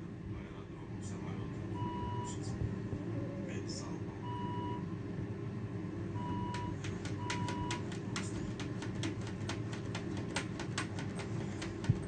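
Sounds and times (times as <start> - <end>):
sharp clicks: 6.5 - 12.0.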